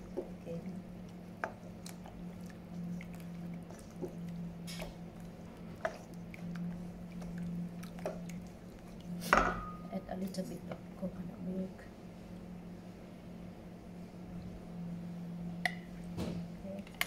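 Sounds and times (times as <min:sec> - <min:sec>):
spatula stirring wet mixture: 0:00.0 - 0:11.2
steady low hum: 0:00.0 - 0:17.0.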